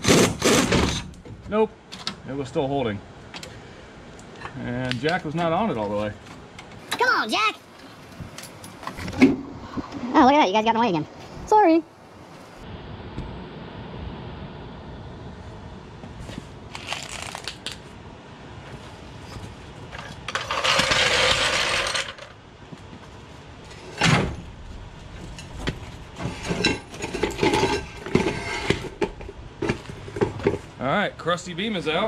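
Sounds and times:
steel clanks and knocks: 0:25.2 - 0:30.7.

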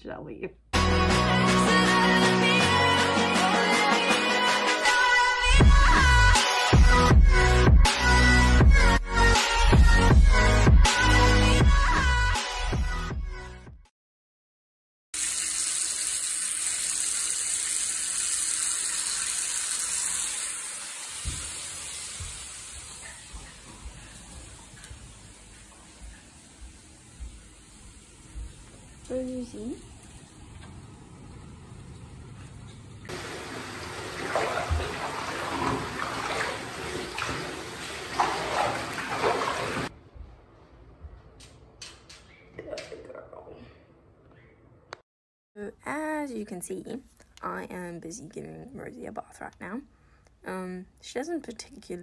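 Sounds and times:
water running from a tap: 0:15.2 - 0:31.9, 0:33.0 - 0:39.9
hand swishing through water: 0:38.1 - 0:39.9.

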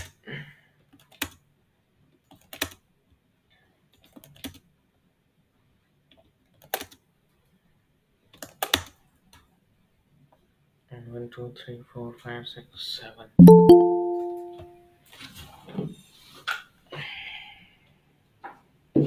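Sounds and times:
keyboard and mouse clicks: 0:01.0 - 0:01.4, 0:02.3 - 0:02.8, 0:04.0 - 0:04.6, 0:06.1 - 0:07.0, 0:08.4 - 0:09.0.

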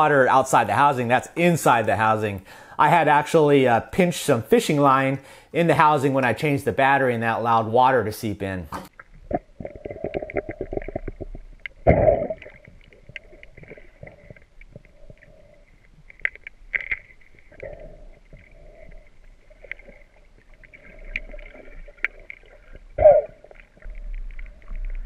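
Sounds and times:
small ticks and crackling clicks: 0:08.9 - 0:25.0
muffled underwater rumble: 0:09.2 - 0:25.0.

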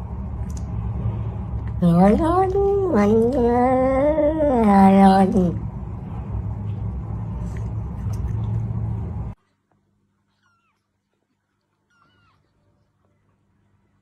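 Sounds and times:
low rumble with hiss: 0:00.0 - 0:10.3.

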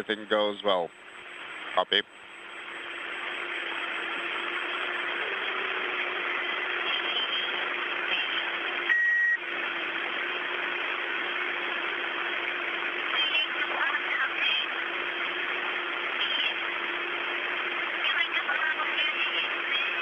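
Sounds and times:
radio hiss: 0:00.0 - 0:08.9, 0:09.6 - 0:20.0
low hum: 0:00.0 - 0:20.0
short electronic beep: 0:08.9 - 0:09.4.

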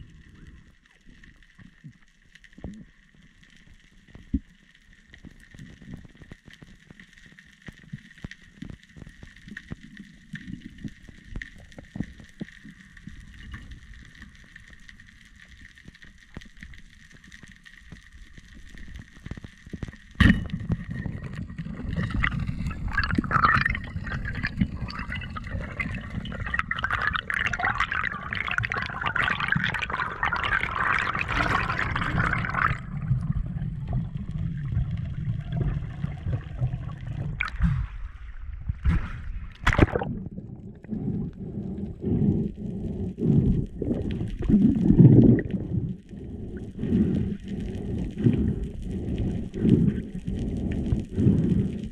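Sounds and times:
faint underwater crackling and clicks: 0:00.0 - 0:51.9
loud bubbling and gurgling: 0:20.6 - 0:42.4, 0:43.2 - 0:49.9.

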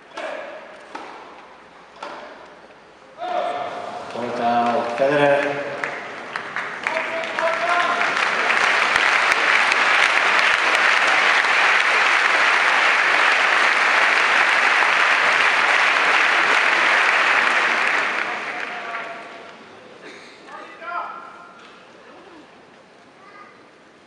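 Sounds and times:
stadium crowd applauding: 0:04.1 - 0:19.7.

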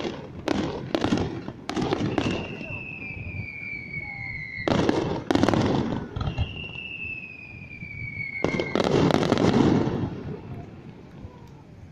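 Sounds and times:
fireworks crackling: 0:00.0 - 0:11.9
firework whistle gliding down: 0:01.8 - 0:05.3, 0:06.0 - 0:09.3.

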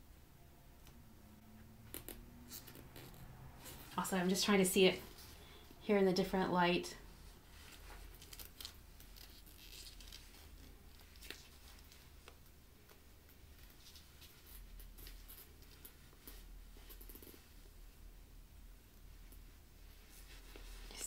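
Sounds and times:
handbag rustling and clicking: 0:01.8 - 0:04.0, 0:07.6 - 0:17.7.

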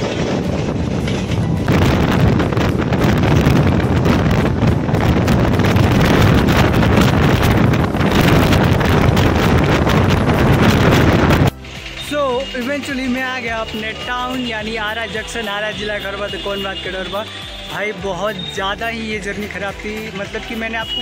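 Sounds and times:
wind buffeting microphone: 0:00.0 - 0:11.6
train running noise: 0:00.0 - 0:15.8.

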